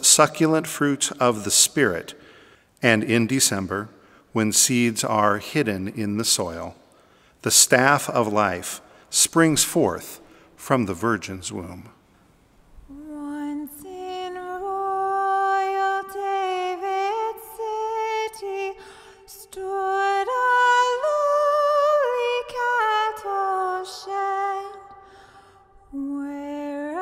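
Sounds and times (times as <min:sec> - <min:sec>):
woman singing a slow carol: 0:12.9 - 0:27.0.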